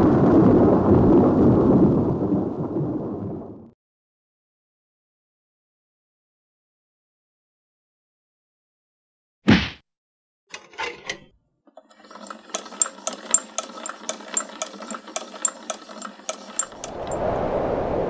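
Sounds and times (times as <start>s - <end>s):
clockwork gears whirring and clicking: 10.5s - 17.2s
low wind-like rush: 16.7s - 18.0s.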